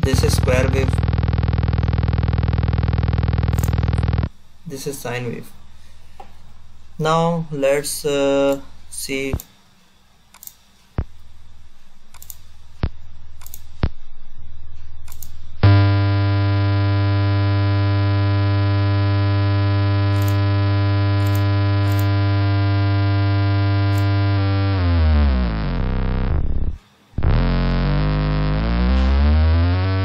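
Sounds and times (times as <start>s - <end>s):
clicks: 0.0s - 4.3s, 15.0s - 22.3s
loud buzzy test tone: 0.0s - 4.4s, 15.6s - 30.0s
low hum: 0.0s - 4.8s, 11.0s - 30.0s.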